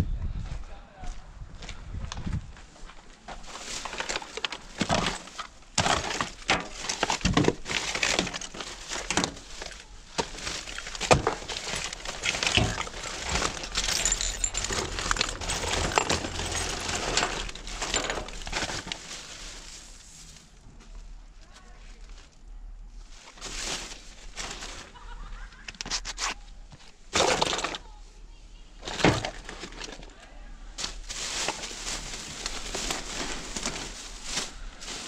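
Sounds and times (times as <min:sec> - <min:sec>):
rubbish rustling: 0:03.2 - 0:35.0
glass and hard items clinking: 0:10.3 - 0:19.1.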